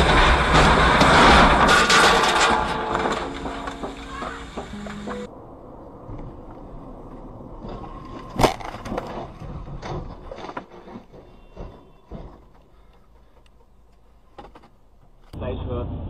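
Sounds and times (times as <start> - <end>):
loud crash impact: 0.0 - 5.3
car crunching and scraping: 0.0 - 5.4, 6.0 - 15.4
road noise: 0.0 - 16.0.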